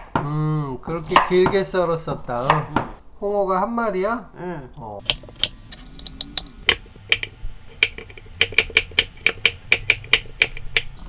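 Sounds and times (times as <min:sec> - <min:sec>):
knife striking wooden cutting board: 0:06.7 - 0:11.0.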